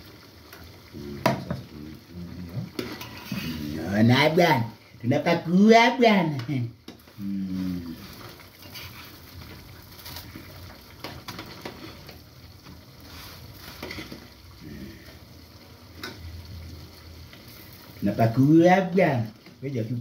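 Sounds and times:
food sizzling in frying pan: 0.0 - 20.0.

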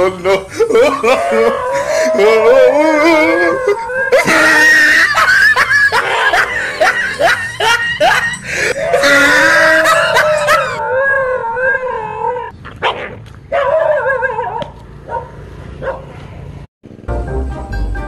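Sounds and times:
dog howling and yelping: 0.7 - 12.5, 13.5 - 14.6.

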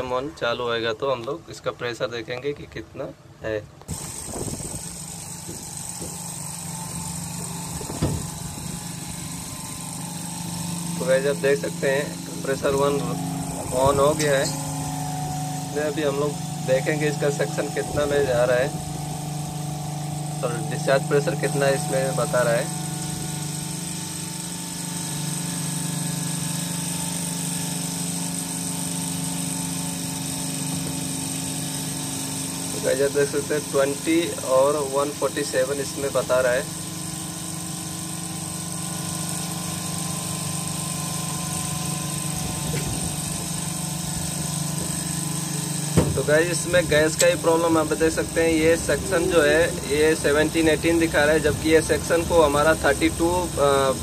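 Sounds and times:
compressor humming: 0.0 - 54.0
faint high whine: 4.0 - 28.3
single knock: 7.9 - 8.2, 46.0 - 46.2.

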